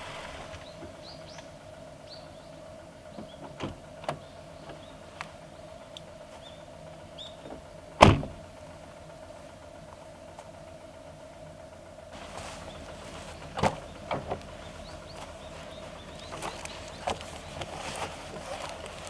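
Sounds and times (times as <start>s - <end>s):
car door latch click: 8.0s - 8.4s.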